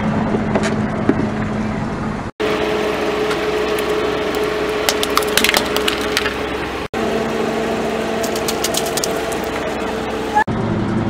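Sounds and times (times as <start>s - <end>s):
car engine humming: 0.0s - 11.0s
plastic toy cracking under tyre: 4.9s - 6.4s.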